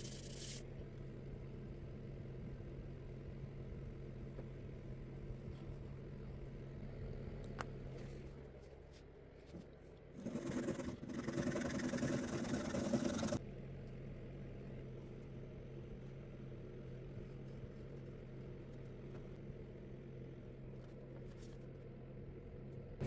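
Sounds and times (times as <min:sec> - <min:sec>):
steady low hum: 0:00.0 - 0:23.0
hacksaw cutting wood: 0:10.2 - 0:13.4.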